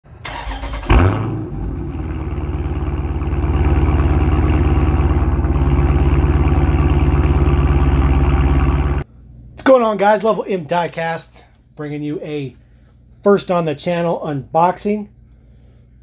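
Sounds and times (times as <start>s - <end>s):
car engine idling: 0.3s - 9.0s
car engine revving: 0.4s - 9.0s.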